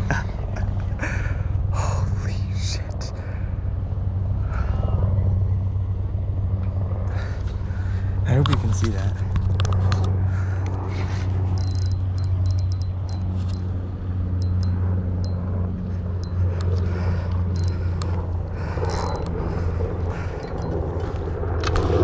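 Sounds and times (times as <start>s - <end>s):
steady low rumble: 0.0s - 22.0s
fishing reel clicks: 11.6s - 13.6s.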